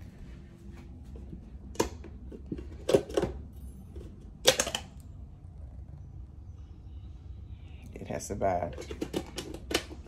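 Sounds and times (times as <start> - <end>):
kitchen items knocking and clicking: 1.7 - 5.0, 8.5 - 10.0.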